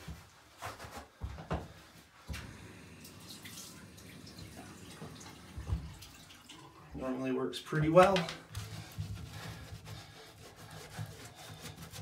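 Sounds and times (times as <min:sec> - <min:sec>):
water dripping and splashing: 0:02.2 - 0:07.2.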